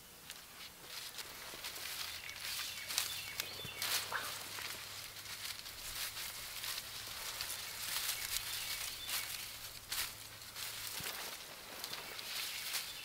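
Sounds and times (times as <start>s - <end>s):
dry grass rustling and crackling: 0.0s - 13.0s.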